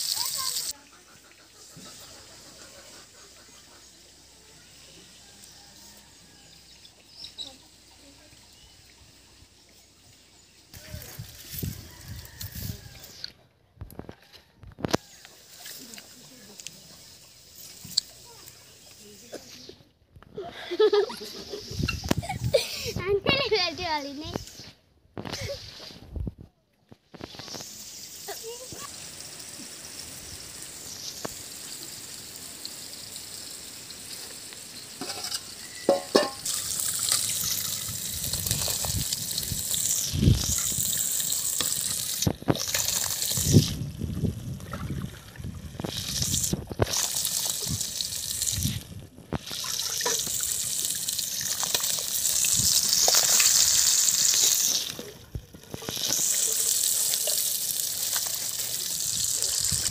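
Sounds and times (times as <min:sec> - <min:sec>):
water sloshing in a pot: 0:34.2 - 0:59.9
low knocks against a pot: 0:35.9 - 0:36.4.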